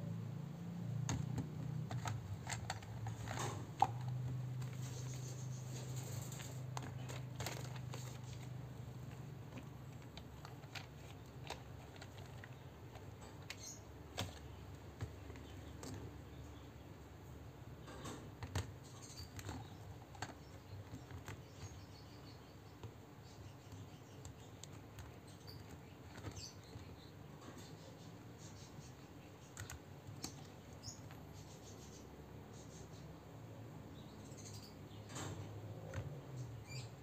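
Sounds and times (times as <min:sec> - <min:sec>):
plastic toys clicking together: 0:01.1 - 0:05.0, 0:06.0 - 0:16.2, 0:17.8 - 0:22.1.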